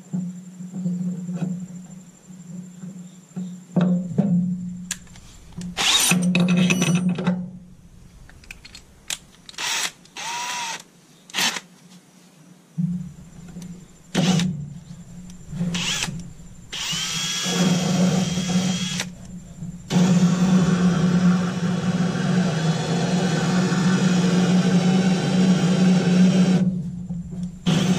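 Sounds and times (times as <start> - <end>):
drill cutting through wood: 5.8 - 6.1, 9.6 - 11.6, 14.2 - 14.5, 15.7 - 19.1, 19.9 - 26.7, 27.6 - 27.9.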